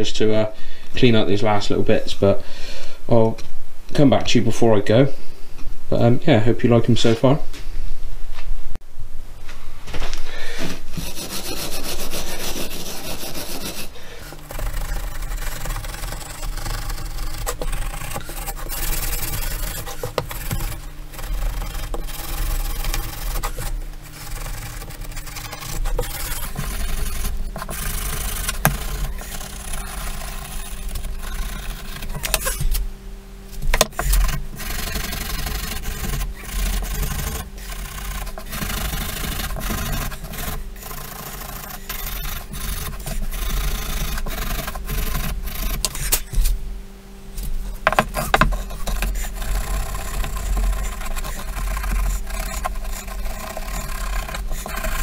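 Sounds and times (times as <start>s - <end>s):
wire brush rasping on wood: 10.9s - 32.9s, 33.6s - 46.6s, 47.4s - 55.0s.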